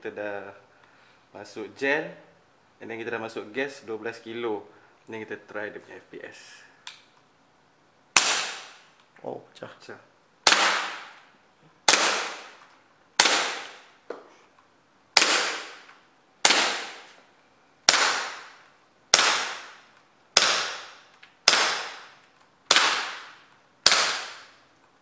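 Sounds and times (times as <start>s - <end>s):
toy gun firing sharp cracks: 8.2s - 9.0s, 10.4s - 14.0s, 15.2s - 17.2s, 17.8s - 24.6s.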